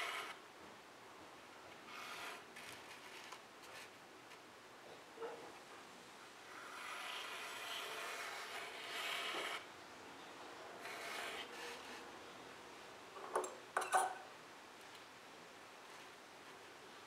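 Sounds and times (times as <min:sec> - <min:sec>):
pen scratching on paper: 0:01.9 - 0:03.9, 0:06.5 - 0:09.6, 0:10.8 - 0:12.0.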